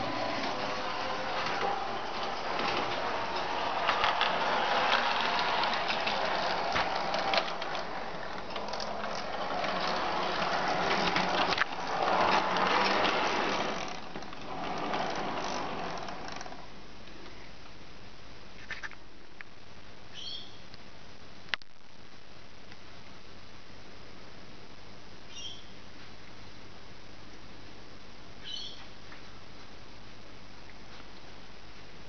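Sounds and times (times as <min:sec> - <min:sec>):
model tram motor whirring: 0:00.0 - 0:16.7
wheels clicking: 0:00.0 - 0:16.7.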